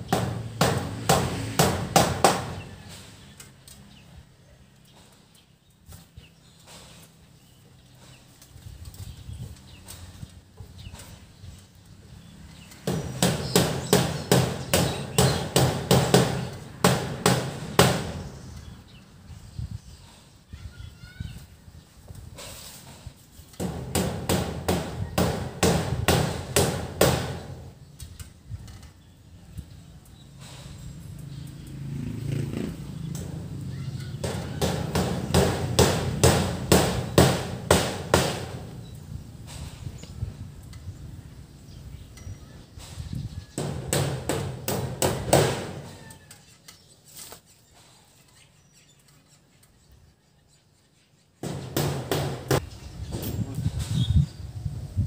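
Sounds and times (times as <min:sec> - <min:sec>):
hammer striking nails: 0:00.0 - 0:02.7, 0:12.8 - 0:18.2, 0:23.6 - 0:27.7, 0:34.2 - 0:38.8, 0:43.6 - 0:45.9, 0:51.4 - 0:52.6.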